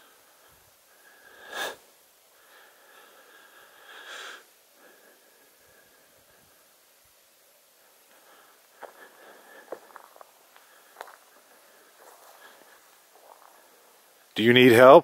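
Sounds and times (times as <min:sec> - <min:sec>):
person breathing: 0:00.0 - 0:14.2
faint background noise: 0:00.0 - 0:15.0
sharp sniff: 0:01.3 - 0:01.9.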